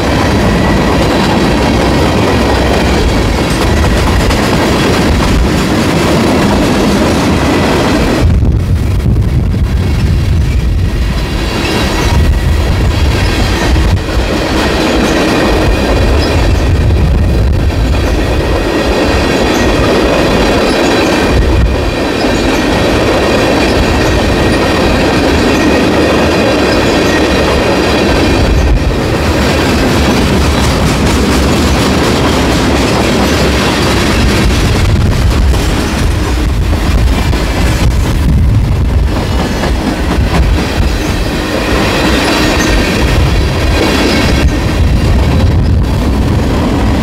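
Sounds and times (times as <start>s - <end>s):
wheels clacking over rail joints: 0.0s - 8.2s, 17.8s - 38.2s
freight train rumbling past: 0.0s - 47.0s
high ringing of wheels on rail: 0.0s - 47.0s.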